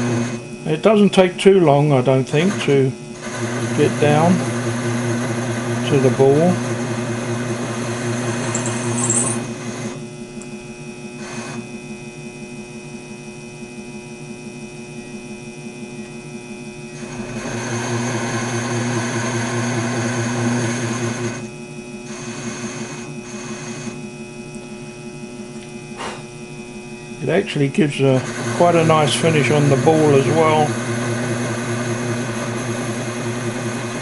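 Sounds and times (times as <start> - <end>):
lathe motor hum: 0.0 - 1.3, 2.2 - 10.5, 11.1 - 11.7, 16.9 - 24.6, 26.0 - 34.0
harsh metal cutting noise: 2.4 - 10.0, 27.2 - 34.0.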